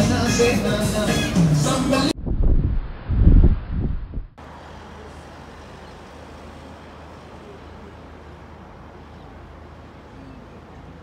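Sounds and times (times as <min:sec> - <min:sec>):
constant low hum: 0:02.1 - 0:04.4
distant traffic hiss: 0:04.4 - 0:11.0.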